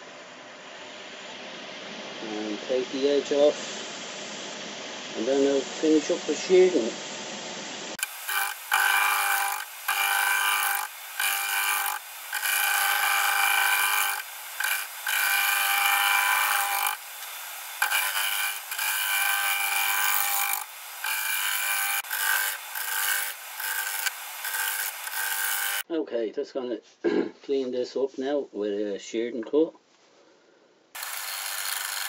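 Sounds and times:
lathe motor hum: 8.0 - 25.8, 31.0 - 32.0
lathe tool cutting wood: 8.0 - 25.8, 31.0 - 32.0.

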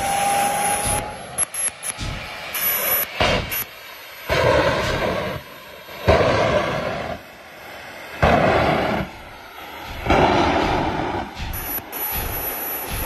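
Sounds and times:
jet engine flame blasts: 0.0 - 13.0.

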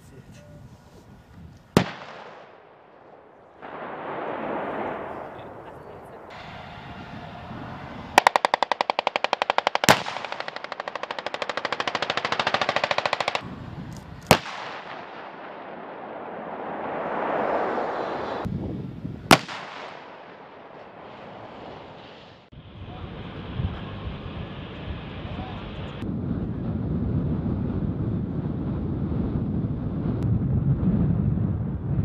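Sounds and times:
machine-gun fire: 1.8 - 2.6, 8.2 - 13.4
single gunshots: 1.8 - 6.4, 8.2 - 13.4, 14.2 - 17.4, 19.3 - 21.2
rush of noise: 3.4 - 9.4, 13.4 - 27.6.

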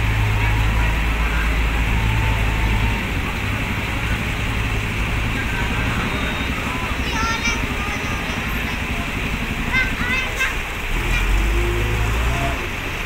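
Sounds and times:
steady background noise: 0.0 - 13.0
truck diesel engine at low revs: 0.0 - 13.0.

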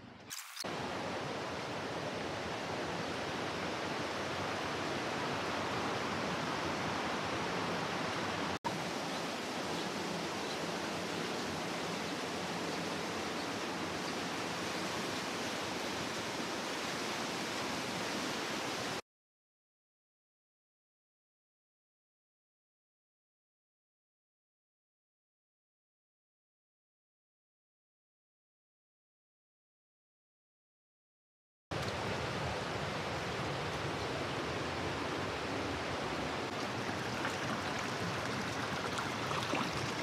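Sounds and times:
rushing water roar: 0.6 - 19.0, 31.8 - 40.0.

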